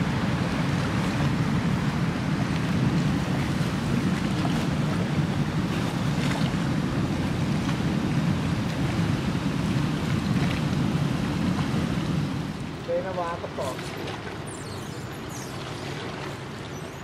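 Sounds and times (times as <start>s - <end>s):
wind rumble on microphone: 0.0s - 13.2s
water rushing past boat: 0.0s - 17.0s.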